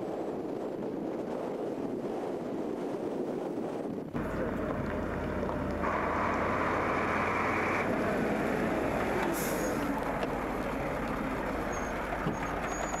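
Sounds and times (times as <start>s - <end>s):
heavy lorry driving past: 4.2s - 13.0s.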